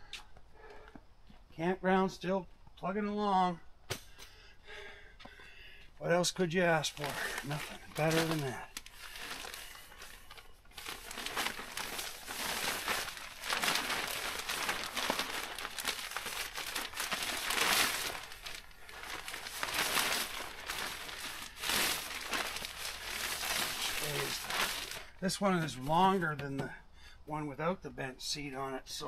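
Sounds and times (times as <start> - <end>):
plastic cover crinkling: 6.7 - 26.2.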